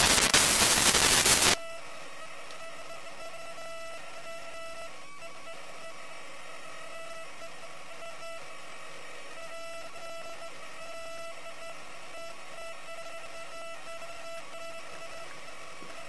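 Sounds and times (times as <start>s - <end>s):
static hiss: 0.0s - 1.6s
buzzy electronic whine: 0.0s - 16.0s.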